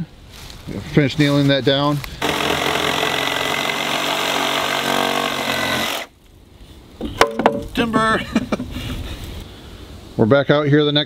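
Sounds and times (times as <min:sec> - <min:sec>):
reciprocating saw cutting wood: 0:02.2 - 0:06.1.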